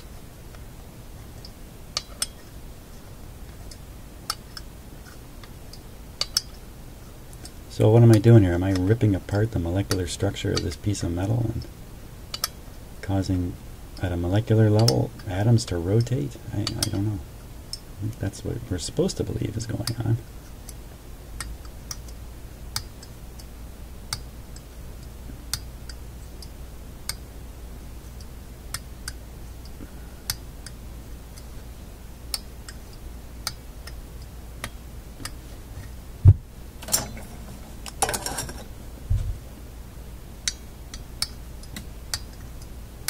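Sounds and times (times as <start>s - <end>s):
low thump: 36.2s - 36.4s
handling clatter: 36.8s - 38.7s
magnet clicking on metal: 40.4s - 42.4s.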